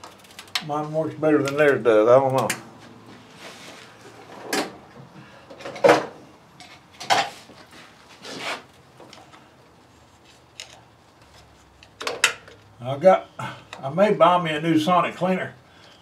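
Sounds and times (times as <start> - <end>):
objects knocking and clattering: 5.5 - 7.4, 11.9 - 12.6
short scrape: 8.2 - 8.7.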